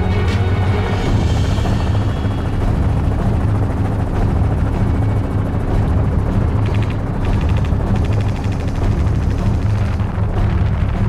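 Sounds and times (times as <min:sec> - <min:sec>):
helicopter rotor and engine: 0:00.0 - 0:11.0
fast even rattle: 0:05.8 - 0:11.0.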